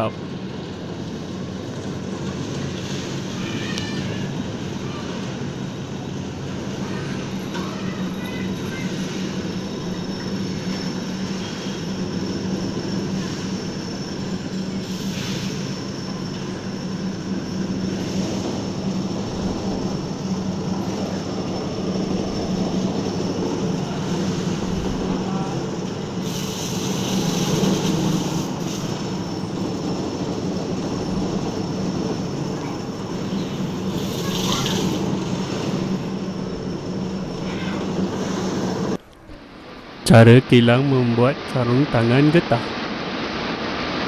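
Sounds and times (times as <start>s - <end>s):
hissing noise: 8.7s - 39.0s.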